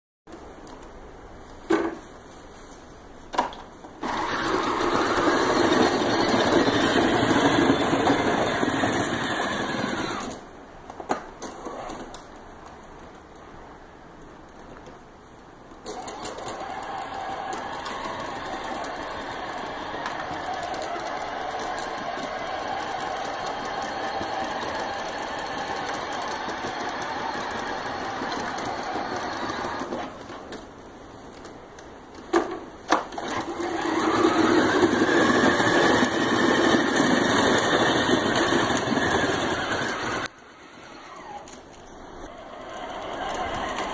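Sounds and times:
electric toy motors running: 4.0s - 10.4s, 15.9s - 30.1s, 33.2s - 40.3s, 42.3s - 43.9s.

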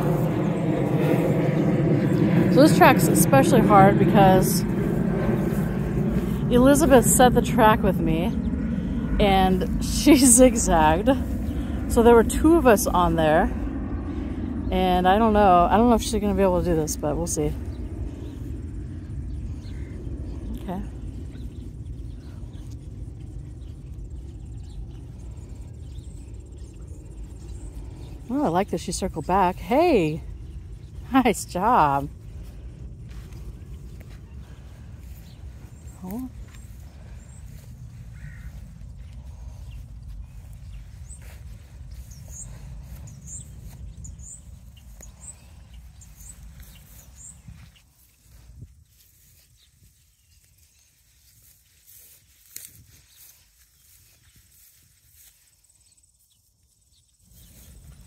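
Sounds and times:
wind rumble on microphone: 0.0s - 56.3s, 56.9s - 58.0s
faint birds chirping: 0.0s - 58.0s
high insect trill: 35.1s - 58.0s.

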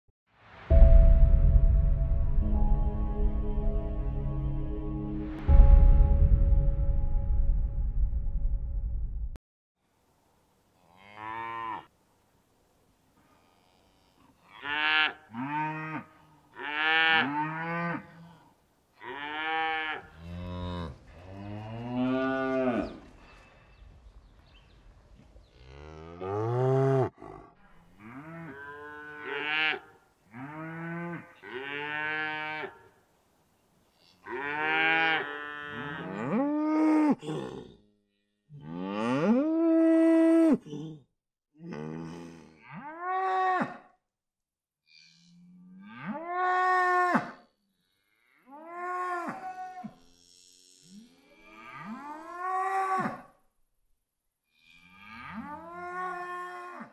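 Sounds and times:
cows mooing: 13.8s - 23.0s, 25.5s - 32.8s, 34.0s - 37.8s, 48.2s - 53.3s, 54.6s - 56.9s.

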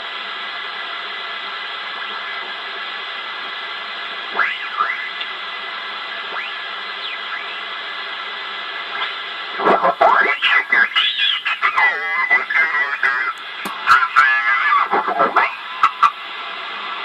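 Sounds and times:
radio receiver hiss: 0.0s - 17.0s
swooping radio whistles: 6.3s - 7.8s, 9.0s - 16.2s.

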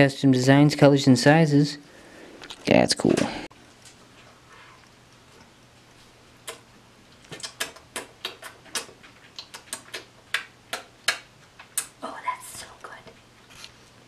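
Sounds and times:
wet lip smacks and mouth clicks: 6.4s - 12.0s.

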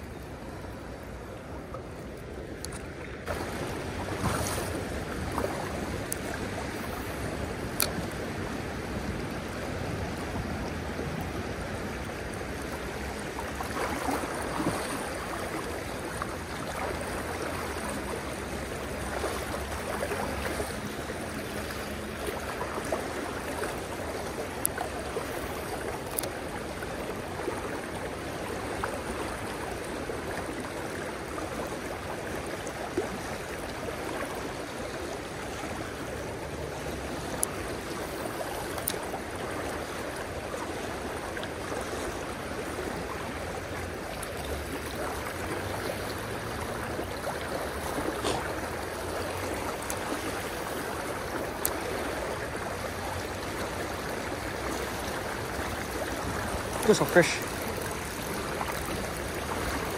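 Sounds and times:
creek water rushing over rocks: 0.0s - 59.9s
faint sharp clicks: 7.7s - 8.1s, 38.7s - 39.0s.

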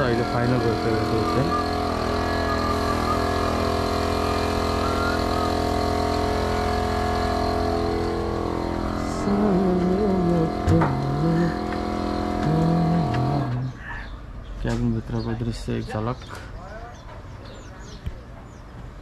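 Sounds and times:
engine droning: 0.0s - 19.0s
person speaking: 12.4s - 13.8s.

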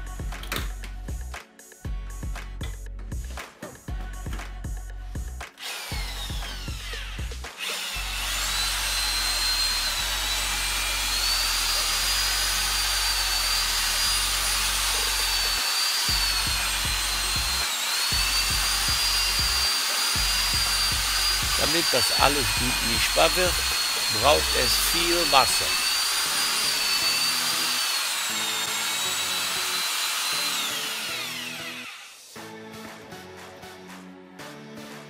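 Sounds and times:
electric drill mixing pulp: 5.6s - 32.4s.

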